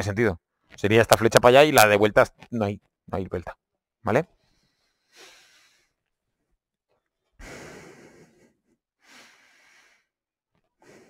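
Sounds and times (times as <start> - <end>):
person breathing: 4.4 - 6.1, 7.4 - 10.2, 10.8 - 11.0.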